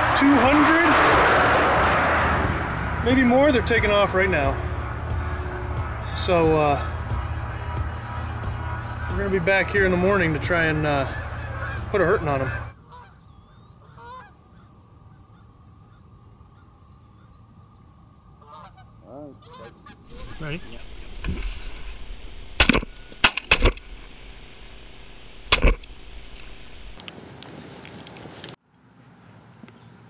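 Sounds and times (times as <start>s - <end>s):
geese honking: 2.7s - 14.3s, 18.4s - 27.0s
shotgun shots: 20.1s - 27.0s.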